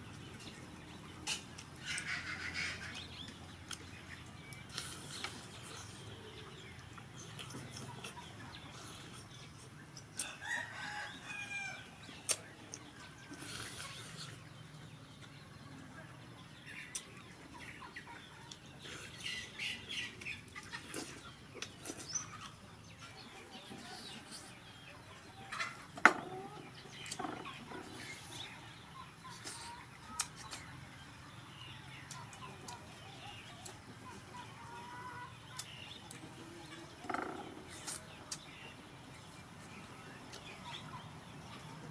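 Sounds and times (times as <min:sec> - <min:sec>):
chickens clucking: 0:00.0 - 0:41.9
chewing and lip-smacking: 0:03.2 - 0:10.2, 0:12.1 - 0:14.4.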